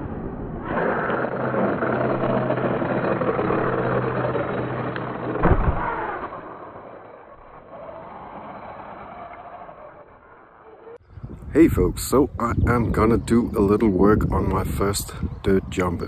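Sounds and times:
rc car motor running hard: 0:00.6 - 0:10.9
deep thump: 0:05.4 - 0:06.0.

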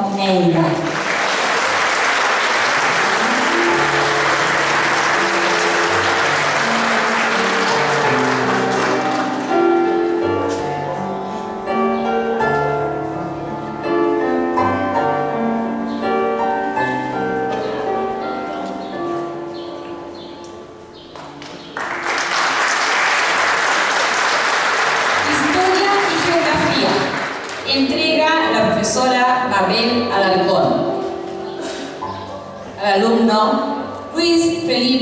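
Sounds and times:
audience applauding: 0:00.8 - 0:09.8, 0:21.2 - 0:28.0
instrumental music with held notes: 0:01.6 - 0:22.2, 0:27.2 - 0:34.8.

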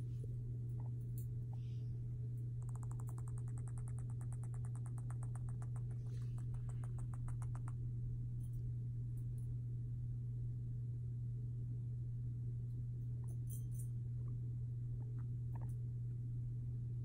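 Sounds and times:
steady low hum: 0:00.0 - 0:17.0
guinea pig clicking: 0:02.6 - 0:07.8.

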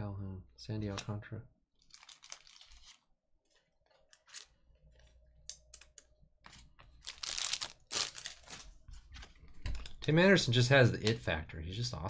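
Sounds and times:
foil wrappers crinkling and tearing: 0:01.8 - 0:03.1, 0:06.9 - 0:08.8.

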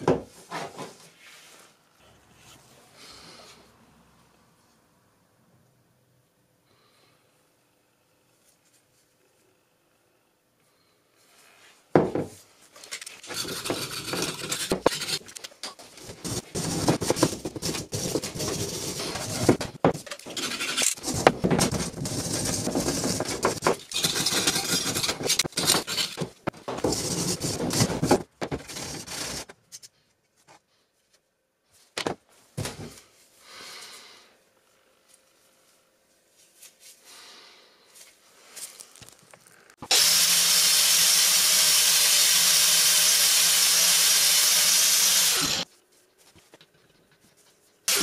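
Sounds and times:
tools knocking on wooden bench: 0:12.0 - 0:12.4
wire brush scraping metal: 0:20.2 - 0:27.8.

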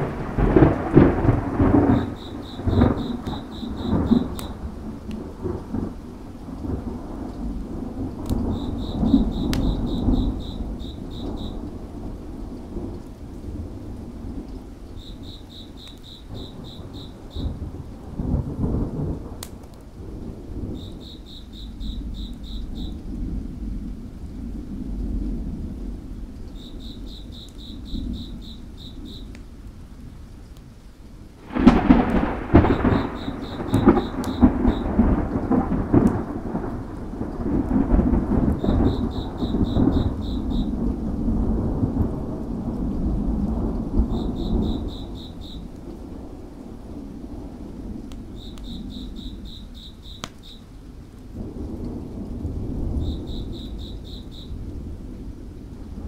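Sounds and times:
insect chirping: 0:00.0 - 0:04.8, 0:08.4 - 0:11.7, 0:14.8 - 0:17.6, 0:20.6 - 0:23.1, 0:26.4 - 0:29.4, 0:31.5 - 0:36.3, 0:37.9 - 0:41.0, 0:43.7 - 0:45.8, 0:48.2 - 0:50.8, 0:52.8 - 0:54.7
thunder rumbling: 0:00.0 - 0:30.1, 0:31.4 - 0:56.0
steady rain: 0:00.0 - 0:56.0
wood fire crackling: 0:00.0 - 0:56.0.

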